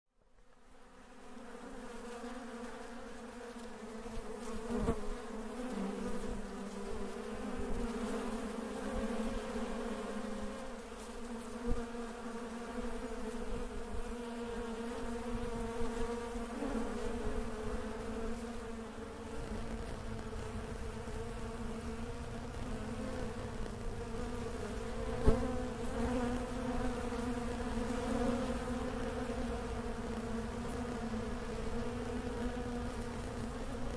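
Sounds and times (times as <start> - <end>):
bees buzzing: 14.2 - 33.9.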